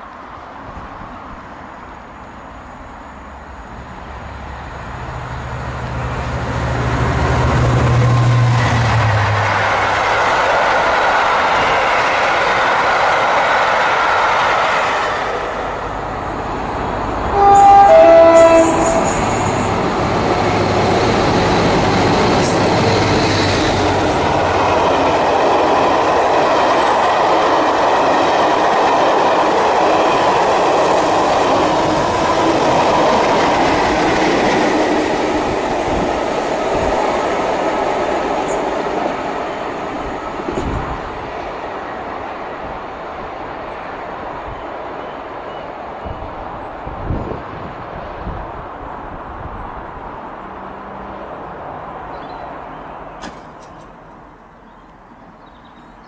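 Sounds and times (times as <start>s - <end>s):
train coaches running on rails: 0.0s - 56.0s
two-tone train horn: 17.2s - 19.7s.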